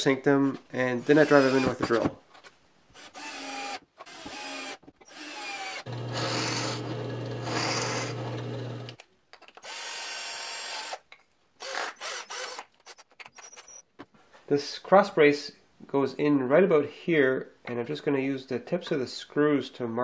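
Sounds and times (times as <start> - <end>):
cordless drill driving screws: 1.1 - 2.0, 3.0 - 9.0, 9.6 - 11.0, 11.6 - 13.8
drill press motor hum: 3.1 - 9.0.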